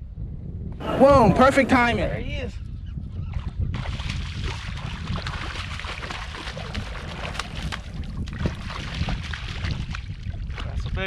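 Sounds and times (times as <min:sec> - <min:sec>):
fish thrashing and splashing: 0:03.8 - 0:10.8.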